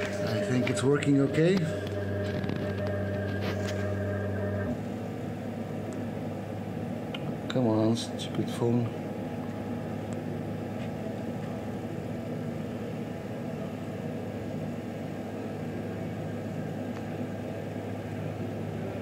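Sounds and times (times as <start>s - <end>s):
machine motors humming: 0.0s - 7.5s.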